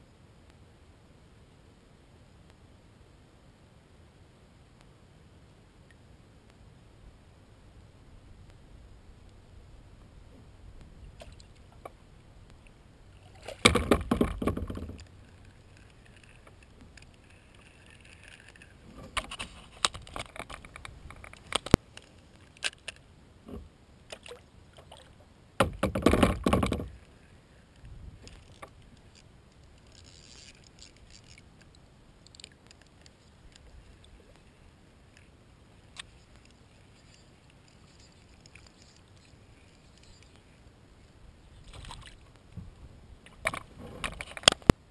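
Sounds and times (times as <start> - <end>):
gear knocking in kayak hull: 13.6 - 15.0, 25.6 - 27.0.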